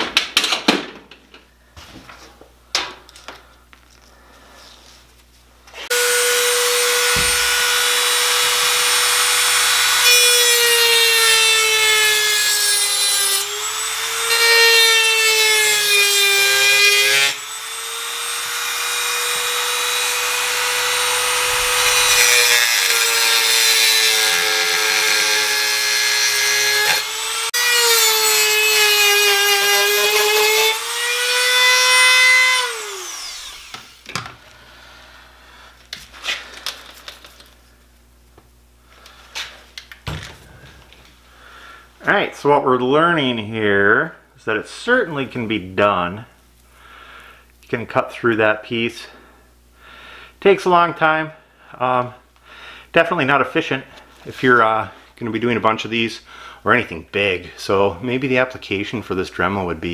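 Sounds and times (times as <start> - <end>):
rotary tool grinding rock: 20.9 - 23.2.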